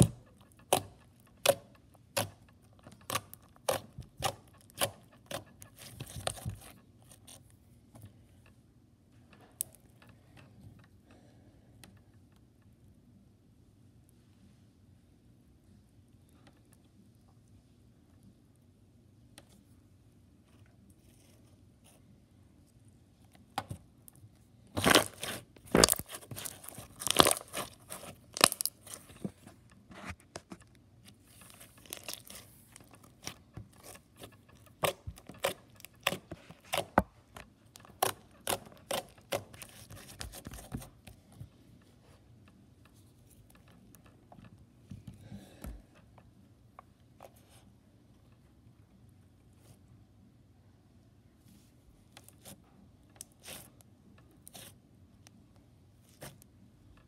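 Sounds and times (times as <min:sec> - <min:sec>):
slime crackling and popping: 0:24.8 - 0:29.2, 0:31.2 - 0:37.0.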